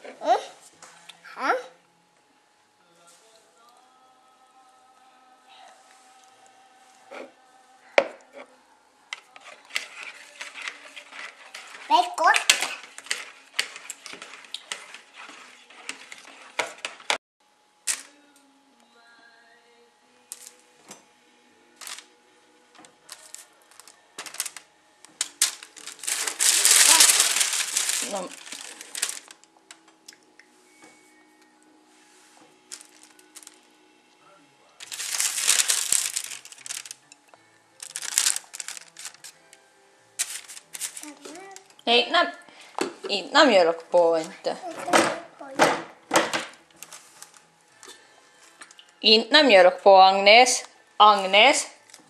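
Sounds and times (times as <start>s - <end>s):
faint background music: 0.0s - 52.0s
plastic bag crinkling: 9.4s - 17.1s, 21.8s - 22.1s, 23.1s - 29.6s, 32.7s - 33.6s, 34.8s - 37.1s, 37.8s - 39.4s, 40.2s - 41.8s, 46.8s - 47.5s
whisk clattering in plastic bowl: 9.4s - 17.2s.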